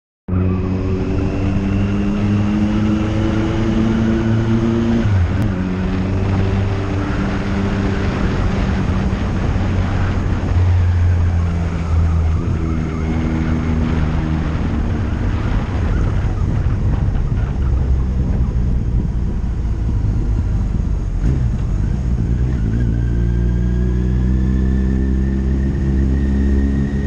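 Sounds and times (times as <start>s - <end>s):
road and air noise: 0.3s - 27.0s
vehicle engine running: 1.2s - 24.0s.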